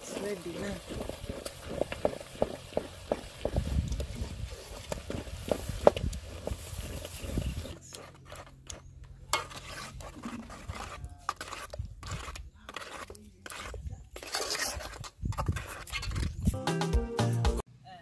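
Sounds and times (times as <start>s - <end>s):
wooden spoon scraping in a pot: 0.0s - 16.4s
metal spoon stirring in a pot: 7.6s - 16.3s.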